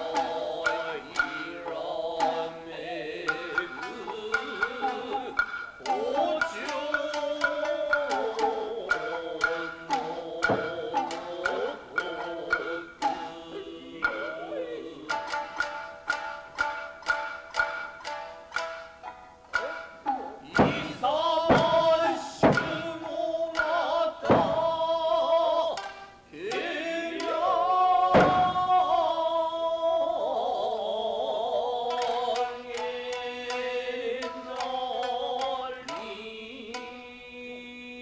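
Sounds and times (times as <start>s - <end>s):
person singing wavering line: 0.0s - 17.8s, 19.6s - 38.0s
shamisen: 0.0s - 38.0s
sharp loud strikes: 3.2s - 18.8s, 19.5s - 26.0s, 26.6s - 29.4s.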